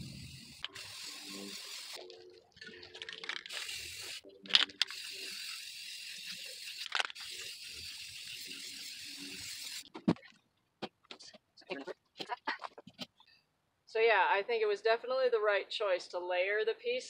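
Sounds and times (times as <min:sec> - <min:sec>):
aerosol spray can hissing: 0:00.0 - 0:02.0, 0:03.5 - 0:09.9.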